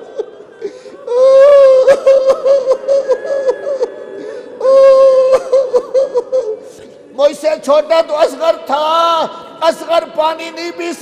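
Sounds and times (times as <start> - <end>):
man weeping and sobbing: 0.0 - 7.4.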